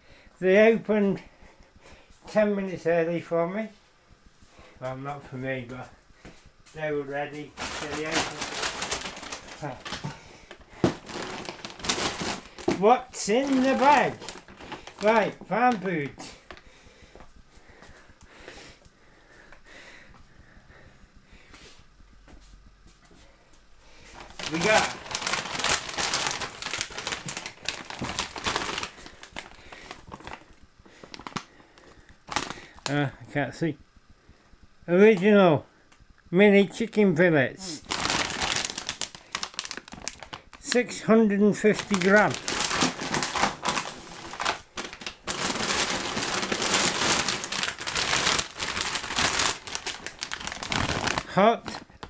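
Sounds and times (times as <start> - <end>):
plastic bag crinkling: 6.8 - 16.6, 24.0 - 33.0, 37.6 - 52.0.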